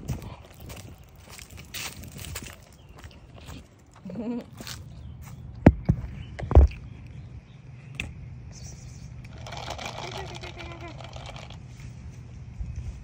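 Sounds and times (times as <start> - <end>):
footsteps on pavement: 0.0 - 6.2.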